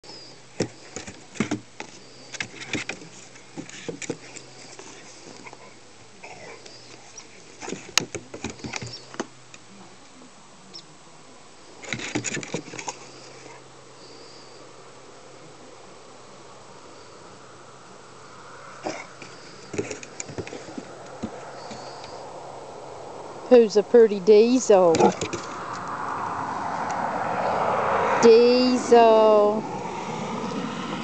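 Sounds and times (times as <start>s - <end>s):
paws scrabbling on wooden steps: 0.6s - 9.2s, 18.9s - 22.1s, 24.9s - 25.6s.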